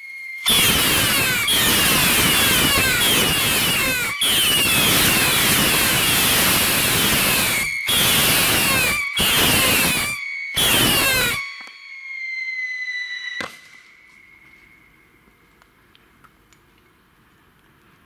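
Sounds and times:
shrill whistling rockets: 0.0 - 15.6
rushing hiss of rocket motors: 0.4 - 11.4.

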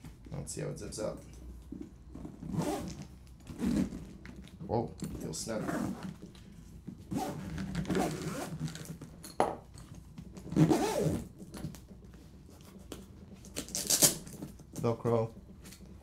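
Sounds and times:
zipper being pulled closed: 2.1 - 4.4, 5.5 - 6.2, 7.0 - 9.1, 10.4 - 11.4, 13.4 - 14.4.

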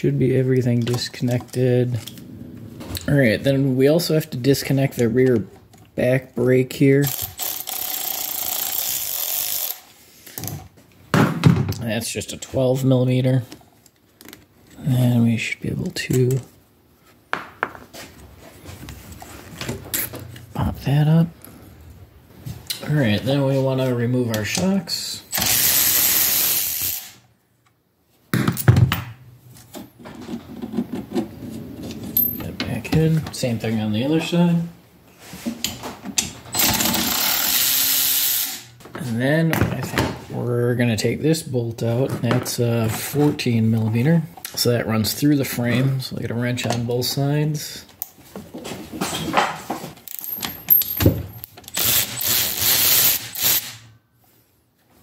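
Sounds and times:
power tool running: 25.4 - 27.2, 36.6 - 38.7, 51.8 - 53.8.

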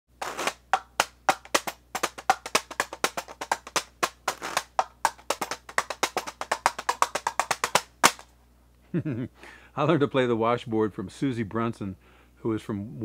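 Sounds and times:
washboard tapping and scraping: 0.2 - 8.2.

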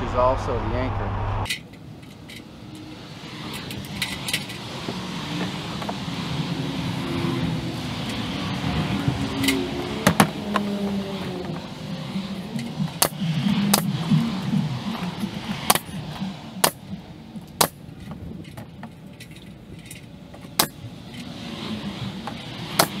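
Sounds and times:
low engine hum: 0.0 - 23.0
sharp clicks and knocks: 12.5 - 21.4, 22.2 - 23.0.

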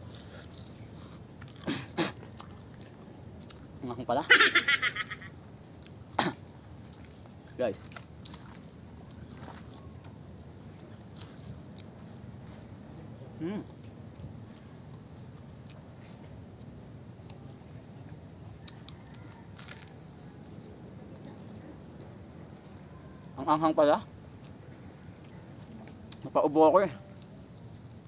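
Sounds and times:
insects droning: 0.0 - 28.0
crunchy bite clicks: 18.6 - 20.0.

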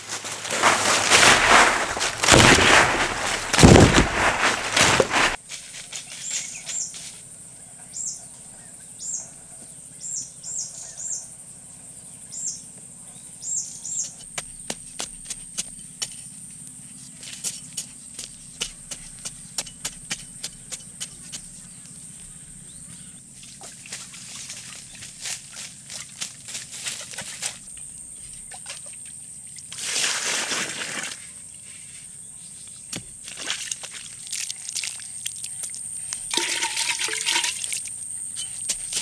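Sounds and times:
spade chopping into sandy soil: 0.5 - 5.4.

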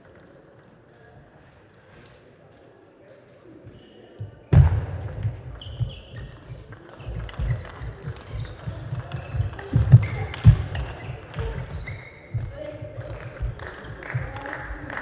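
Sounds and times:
shoes squeaking: 3.6 - 13.8.

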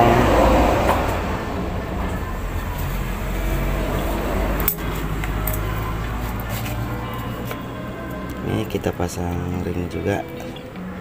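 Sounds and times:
low hum: 0.0 - 11.0
small metal parts clinking: 4.6 - 7.6.

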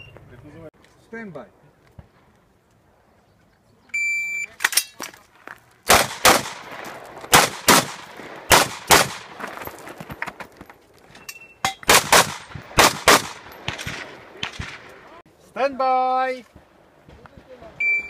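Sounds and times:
rifle shots with echo: 5.9 - 9.4, 11.8 - 15.1.

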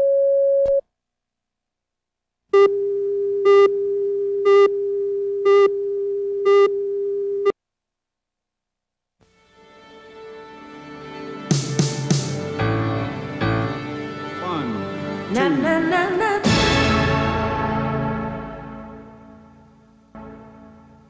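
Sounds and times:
reference tone: 0.0 - 0.9, 2.6 - 7.6.

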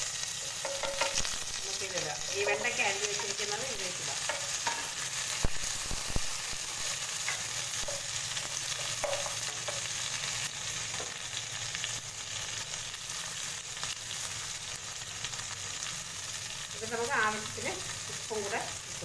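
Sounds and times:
vegetables sizzling in hot oil: 0.0 - 19.0
spatula stirring in pot: 0.4 - 1.4.

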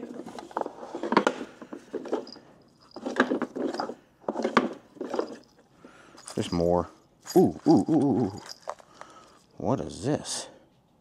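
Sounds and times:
metal chains clinking: 1.9 - 9.6.

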